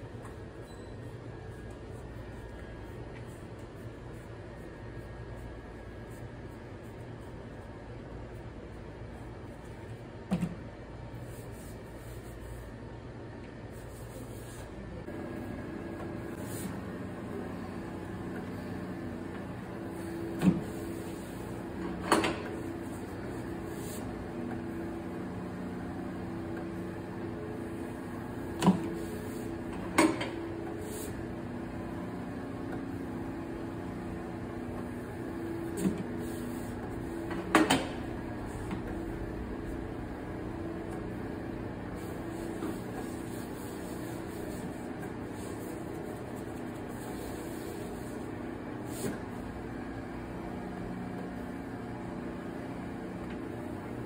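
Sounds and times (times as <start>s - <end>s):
electric machine hum: 14.9s - 54.0s.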